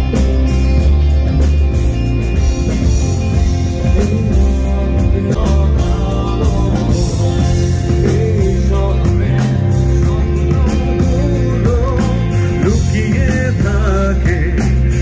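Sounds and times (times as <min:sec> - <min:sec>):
bass guitar: 0:00.0 - 0:15.0
drums: 0:00.0 - 0:15.0
electric guitar: 0:00.0 - 0:15.0
man singing into microphone: 0:03.9 - 0:15.0.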